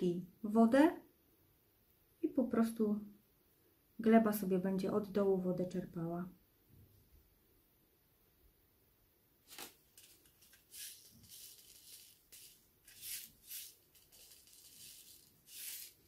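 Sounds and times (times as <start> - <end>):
seed packet rustling: 9.4 - 16.0
seeds rattling: 9.4 - 16.0.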